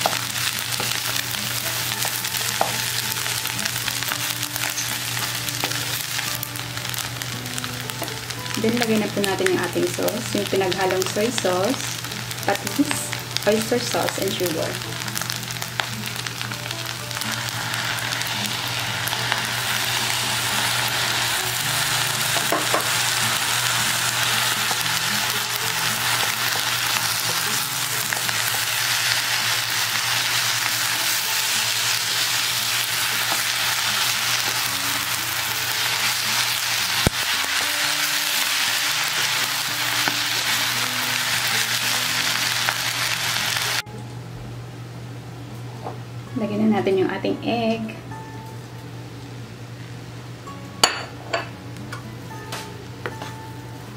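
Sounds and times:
fried rice sizzling in a pan: 0:00.0 - 0:43.8.

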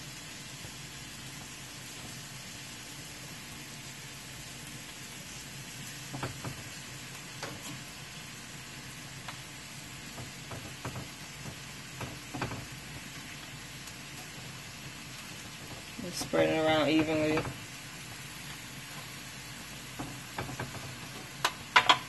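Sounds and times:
meat and vegetables sizzling: 0:00.0 - 0:22.0
fork tapping and scraping pan: 0:20.0 - 0:22.0.

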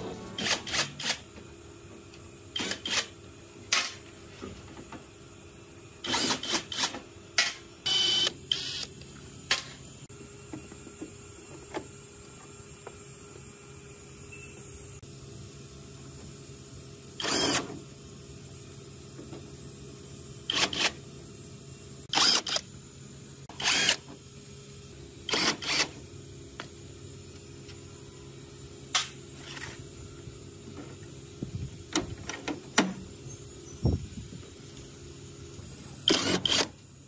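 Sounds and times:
impact driver short bursts: 0:00.3 - 0:01.3, 0:02.5 - 0:04.0, 0:06.0 - 0:08.9, 0:17.2 - 0:17.8, 0:20.5 - 0:21.0, 0:22.1 - 0:22.7, 0:25.3 - 0:26.0, 0:36.0 - 0:36.8.

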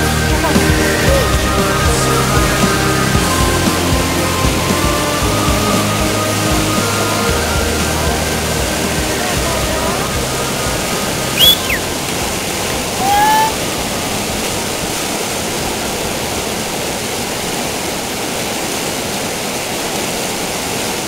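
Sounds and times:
whitewater roaring: 0:00.0 - 0:21.0
brief high-pitched sounds: 0:11.4 - 0:11.8, 0:13.0 - 0:13.6.

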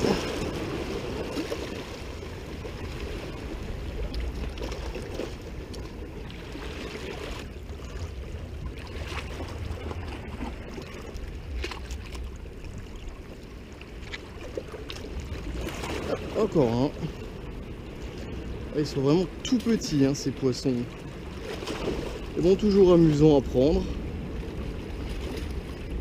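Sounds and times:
small waves lapping against rocks: 0:00.0 - 0:26.0
faint sharp splashes: 0:20.8 - 0:22.4.

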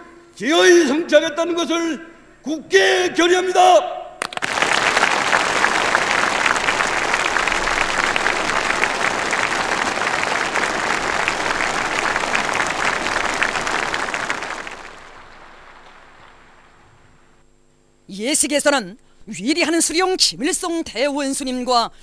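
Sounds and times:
crowd applause: 0:04.2 - 0:17.1.

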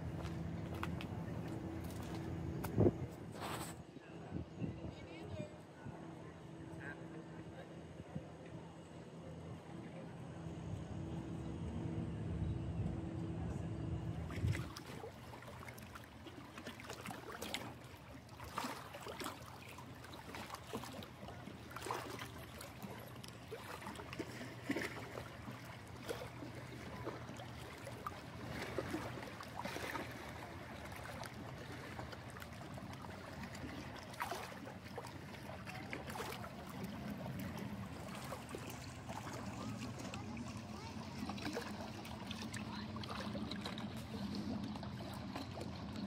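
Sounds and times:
water lapping and splashing: 0:00.0 - 0:03.9, 0:14.0 - 0:46.0
low steady hum: 0:00.0 - 0:46.0.

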